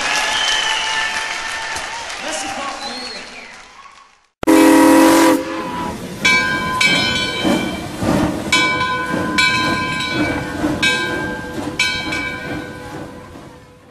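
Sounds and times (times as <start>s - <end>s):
train horn short blasts: 4.4s - 6.0s
train rumbling: 4.4s - 13.9s.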